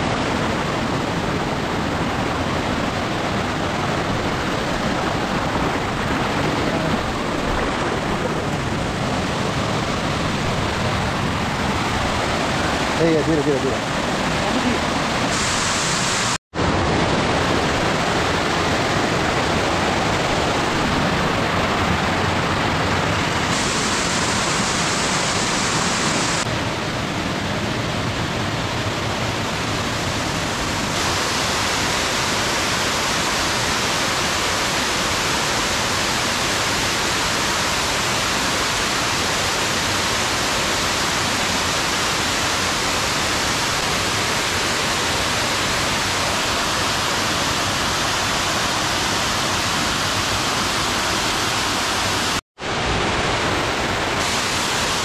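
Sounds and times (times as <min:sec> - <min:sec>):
waterfall rushing over rock: 0:00.0 - 0:55.0.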